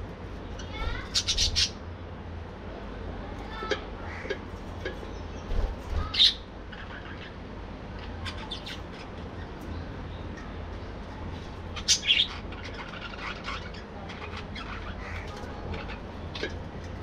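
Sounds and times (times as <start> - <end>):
budgerigars chirping and squawking: 0.6 - 1.8, 5.5 - 9.6, 11.7 - 16.6.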